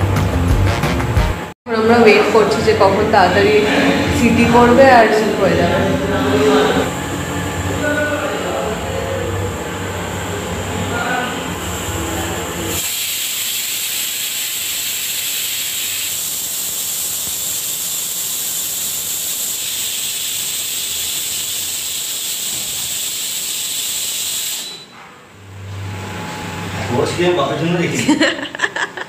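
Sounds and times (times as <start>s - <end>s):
pressure cooker steam hissing: 11.6s - 24.9s.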